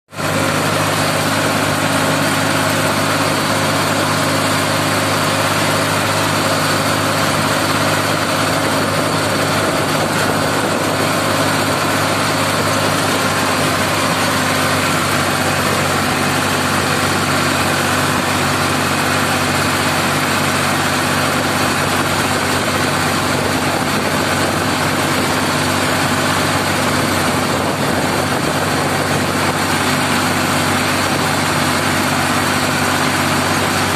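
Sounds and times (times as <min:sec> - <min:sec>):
tractor engine running: 0:00.1 - 0:33.9.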